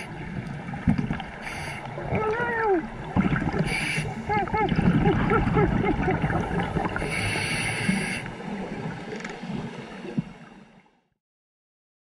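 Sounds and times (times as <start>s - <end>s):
gurgling exhaled bubbles: 0.0s - 10.4s
regulator inhale hiss: 1.4s - 1.9s, 3.6s - 4.2s, 7.0s - 8.4s.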